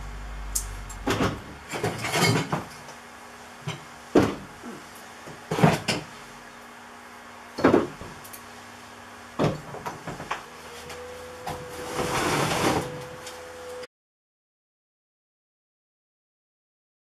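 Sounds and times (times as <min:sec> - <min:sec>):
plastic bins clunking: 0:01.0 - 0:02.7
plastic bins scraping rattle: 0:01.0 - 0:02.8, 0:11.6 - 0:13.1.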